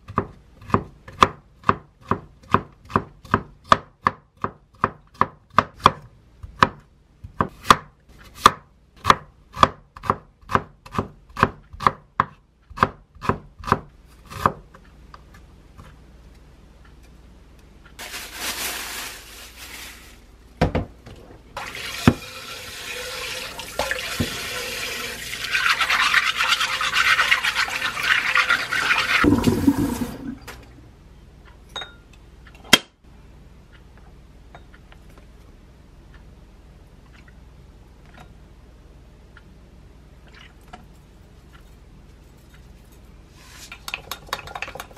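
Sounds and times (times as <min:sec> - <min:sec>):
knife chopping on cutting board: 0:00.0 - 0:14.7
tap water running into sink: 0:21.6 - 0:30.6.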